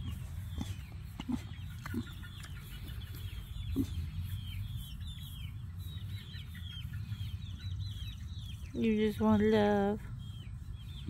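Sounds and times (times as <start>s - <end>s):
pig grunting softly: 0.0s - 2.3s, 3.6s - 4.1s
birds chirping: 0.0s - 11.0s.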